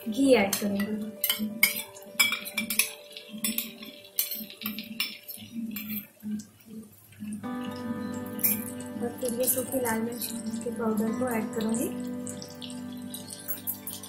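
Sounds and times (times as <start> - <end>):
steel spoon clinking on bowl: 0.6 - 6.1, 8.4 - 8.8.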